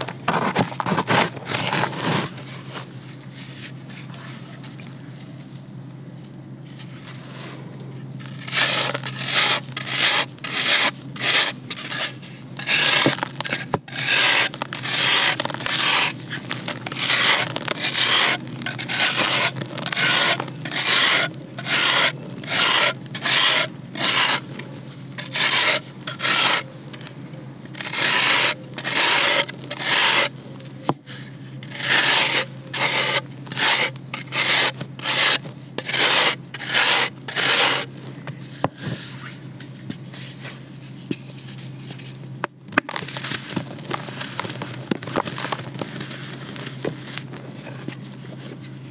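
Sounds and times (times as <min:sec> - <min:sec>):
serrated knife scraping dry dirt: 0:00.0 - 0:04.6, 0:06.8 - 0:30.4, 0:31.0 - 0:38.0.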